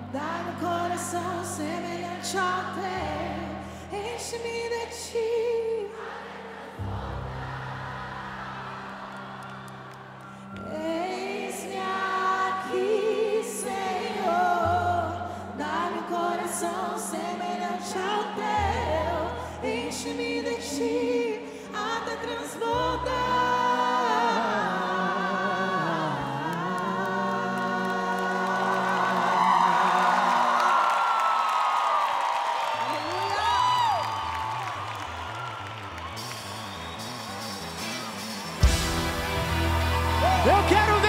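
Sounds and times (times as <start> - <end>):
voices singing slow melody: 0.0 - 31.0
deep bass notes: 38.5 - 41.0.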